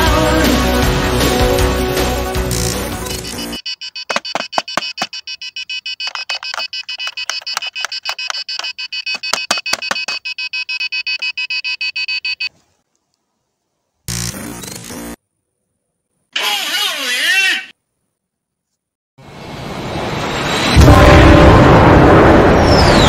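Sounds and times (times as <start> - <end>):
short high electronic beeps: 3.0 - 12.5
loud noise: 19.2 - 23.0.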